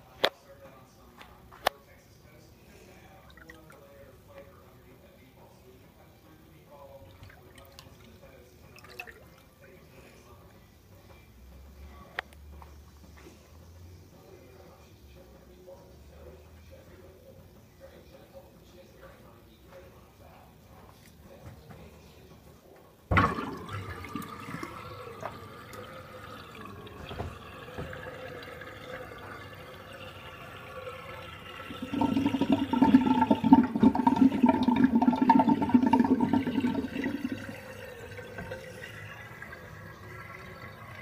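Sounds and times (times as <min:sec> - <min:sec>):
water draining and gurgling in sink: 0:07.1 - 0:09.5, 0:23.1 - 0:41.0.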